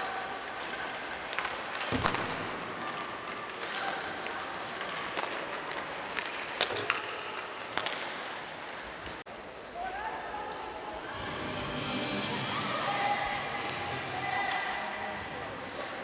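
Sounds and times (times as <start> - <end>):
hockey sticks and puck clacking: 0.0 - 9.7, 13.6 - 15.0.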